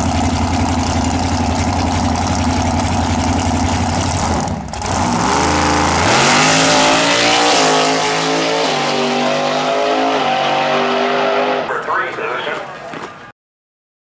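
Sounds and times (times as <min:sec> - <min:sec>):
drag car engine revving: 0:00.0 - 0:11.7.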